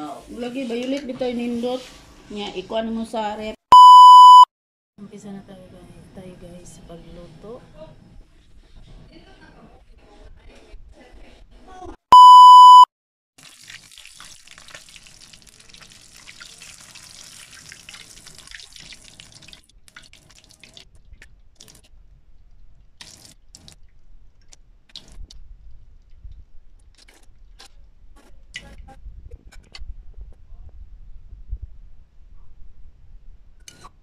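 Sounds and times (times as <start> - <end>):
loud high beep: 3.7 - 4.5, 12.1 - 12.9
oil sizzling in a wok: 13.4 - 20.8.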